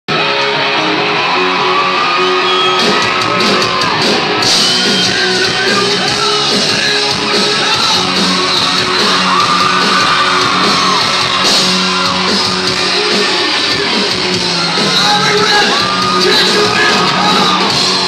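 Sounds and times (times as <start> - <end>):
live rock band playing: 0.1 - 18.0
crowd shouting along: 0.2 - 18.0.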